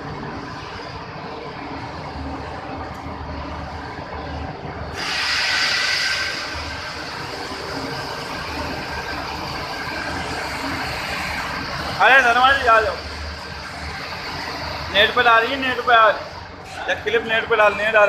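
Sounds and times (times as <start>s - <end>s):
machinery hum: 0.0s - 18.0s
loud hiss: 4.9s - 8.9s.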